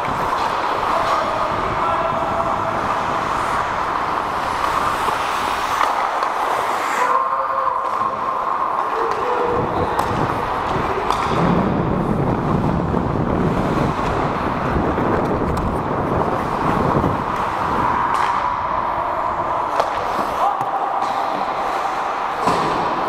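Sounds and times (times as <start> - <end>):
wind on microphone: 0.0 - 5.6, 9.0 - 20.1
skates on ice: 0.0 - 23.0.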